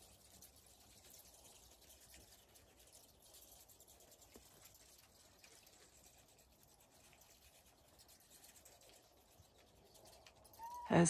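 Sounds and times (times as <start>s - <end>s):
bats squeaking: 8.6s - 11.0s.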